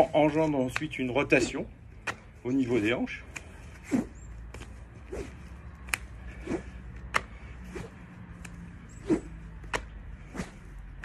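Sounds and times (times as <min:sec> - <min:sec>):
rope slapping against body: 0:00.5 - 0:02.4, 0:03.2 - 0:11.0
rope swishes: 0:03.3 - 0:11.0.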